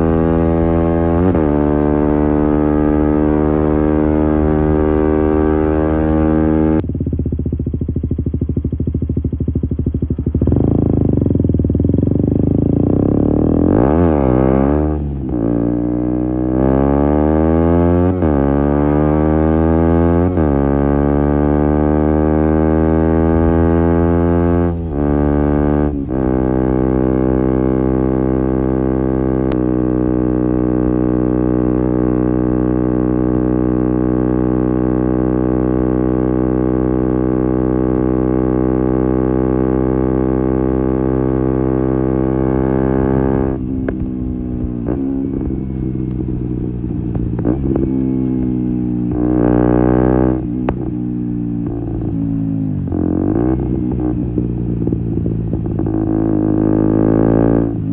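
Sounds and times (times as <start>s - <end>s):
motorcycle engine accelerating: 0.0s - 57.9s.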